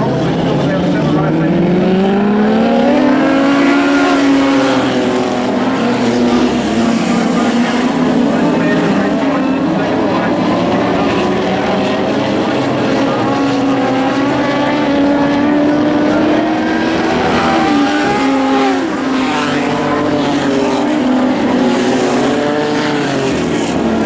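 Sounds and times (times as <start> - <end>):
sprint car engines racing: 0.0 - 24.0.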